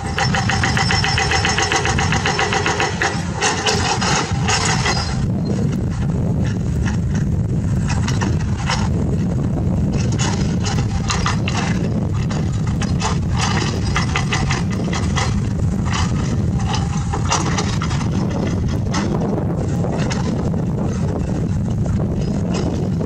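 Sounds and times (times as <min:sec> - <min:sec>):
excavator diesel engine running: 0:00.0 - 0:23.0
bucket scraping through rock: 0:02.0 - 0:05.2.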